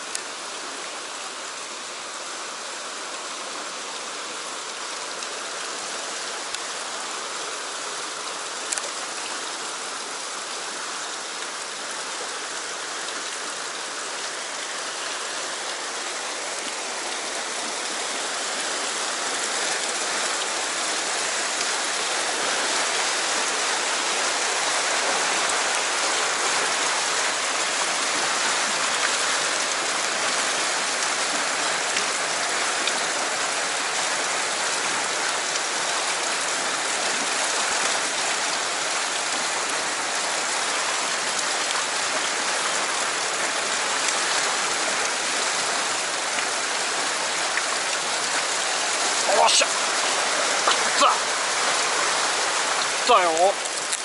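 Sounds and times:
whitewater rushing past rocks: 11.2 - 54.0.

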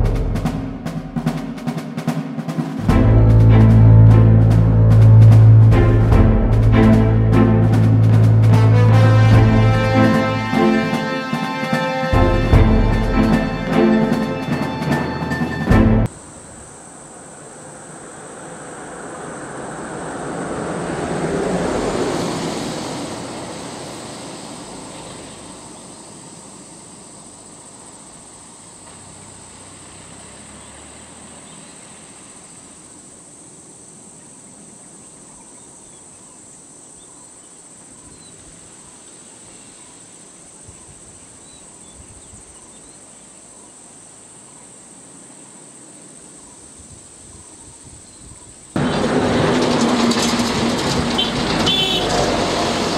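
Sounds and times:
vehicle driving past: 2.8 - 11.1, 17.1 - 26.2, 28.8 - 32.8, 48.8 - 52.9
insect hiss: 6.8 - 48.8.

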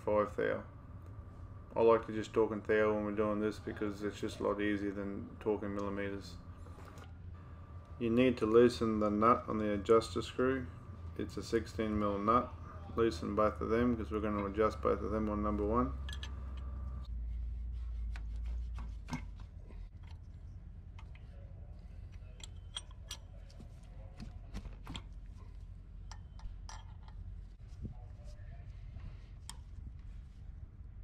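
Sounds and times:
low hum: 0.0 - 31.0
wrench clicking on metal nuts: 22.4 - 23.3.

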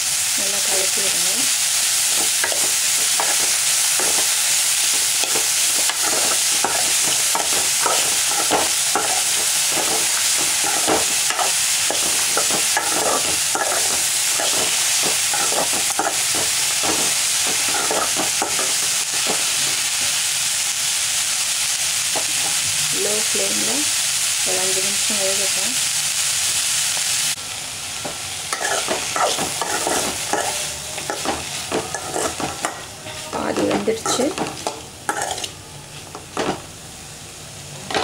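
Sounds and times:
green beans sizzling in a pan: 0.0 - 38.0
spoon scraping a metal pan: 2.2 - 19.8, 28.5 - 35.6.

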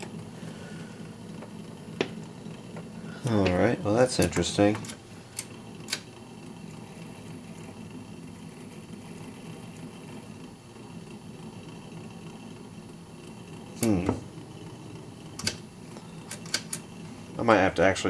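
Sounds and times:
record changer motor rumble: 0.0 - 18.0
record changer click: 1.4 - 6.1, 15.3 - 16.9.

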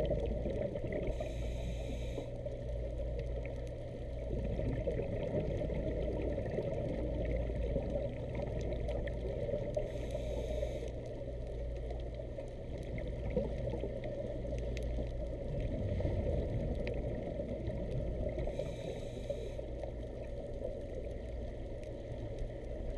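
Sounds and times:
muffled water gurgling: 0.0 - 22.9.

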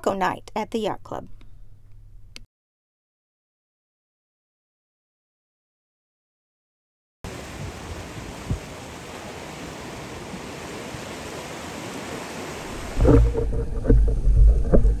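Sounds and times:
wind: 7.2 - 15.0
sea noise: 7.3 - 15.0
muffled underwater water rumble: 12.6 - 15.0.

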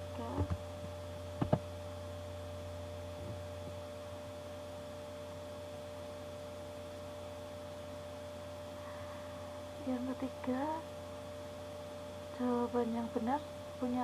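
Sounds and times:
low electrical hum: 0.0 - 14.0
thin steady tones: 4.0 - 14.0.

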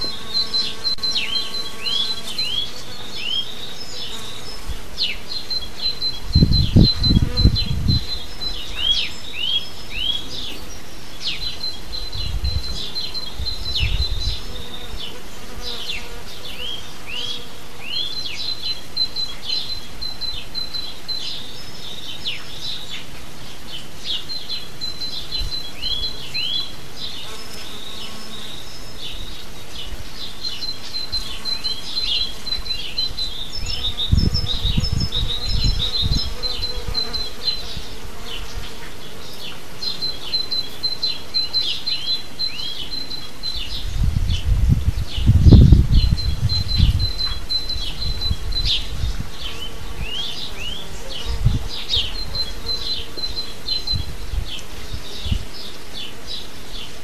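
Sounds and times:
honeybees buzzing: 0.0 - 21.8, 24.0 - 57.0
songbirds chirping: 0.0 - 57.0.

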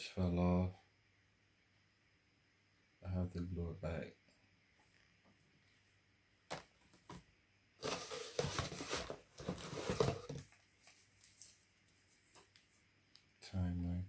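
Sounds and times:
packaging rustling and scraping: 7.8 - 12.8.

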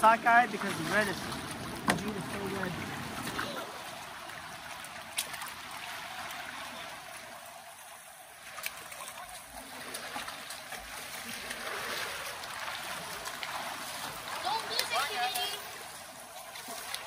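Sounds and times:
river water flowing: 0.0 - 17.0.

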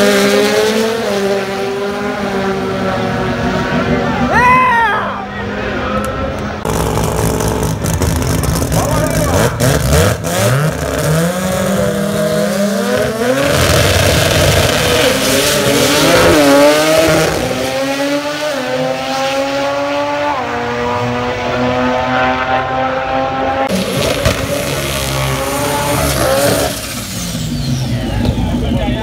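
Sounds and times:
drag race car engines revving: 0.0 - 4.4, 5.2 - 29.0
car accelerating at full throttle: 0.0 - 4.5, 5.2 - 29.0
tyre noise during burnout: 6.6 - 17.8.

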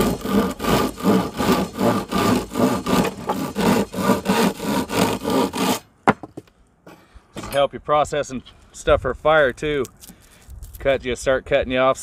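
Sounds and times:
hand saw cutting a branch: 0.0 - 5.8.

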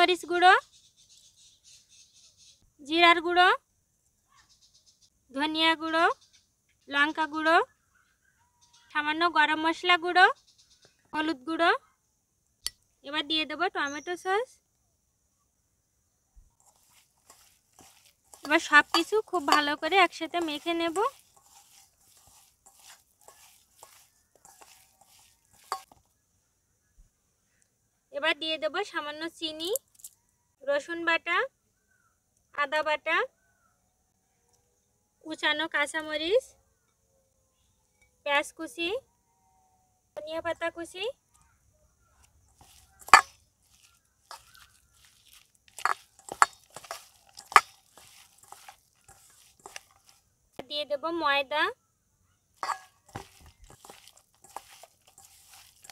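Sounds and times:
hands mixing wet chicken: 16.6 - 26.0, 42.3 - 50.3, 52.6 - 55.9.

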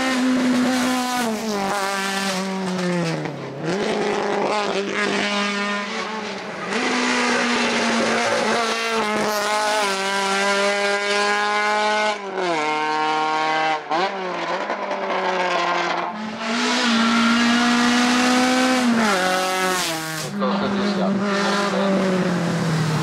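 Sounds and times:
race car engine revving: 0.0 - 23.0.

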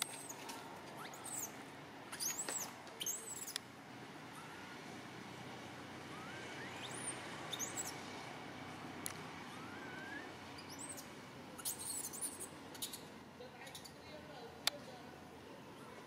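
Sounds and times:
steady background hiss: 0.0 - 16.0
baby macaque squeaking: 1.0 - 3.6, 4.3 - 4.8, 6.2 - 8.0, 9.6 - 14.0
rising whistles: 6.1 - 8.0, 9.5 - 11.1.

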